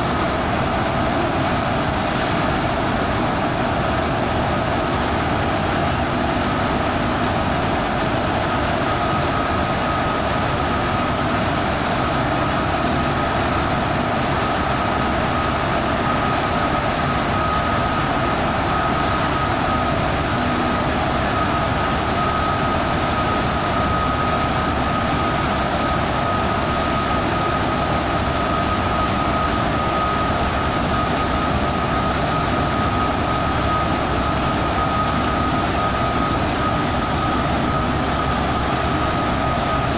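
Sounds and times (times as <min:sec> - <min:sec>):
bus roar in tunnel: 0:00.0 - 0:39.9
steady high whine: 0:00.0 - 0:39.9.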